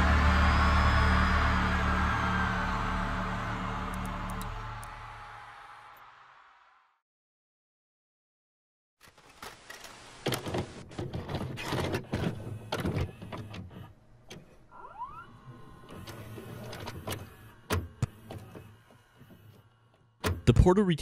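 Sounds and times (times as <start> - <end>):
short rising whine: 0.0 - 5.3
tape mechanism clicks and clunks: 9.0 - 20.7
motor whirring: 11.9 - 20.4.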